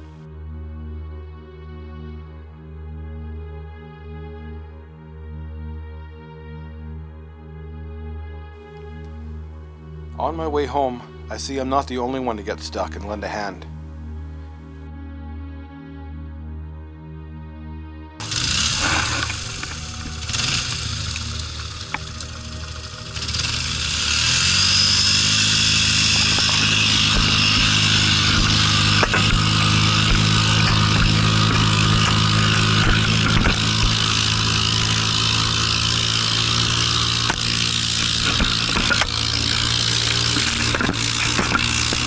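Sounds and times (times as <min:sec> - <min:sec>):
snowmobile engine revving: 0:18.2 - 0:42.0.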